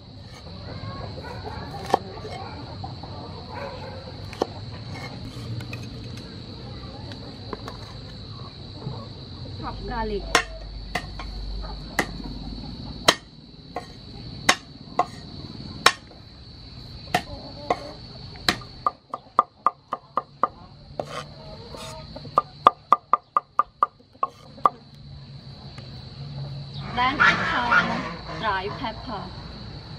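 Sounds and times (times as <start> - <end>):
cleaver chopping on wooden board: 1.7 - 2.0, 10.4 - 11.2, 12.0 - 12.2, 13.1 - 15.2, 17.1 - 17.9.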